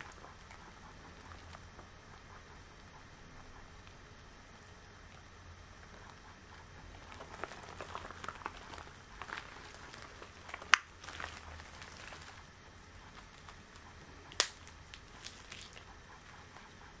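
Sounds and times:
latex gloves squeaking and crackling: 0:06.6 - 0:15.9
latex glove snap: 0:14.3 - 0:15.7.

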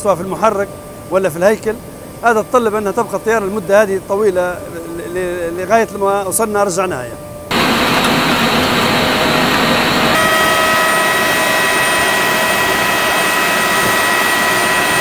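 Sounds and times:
high steady turbine whine: 0:07.2 - 0:15.0
jet turbine rushing: 0:07.5 - 0:15.0.

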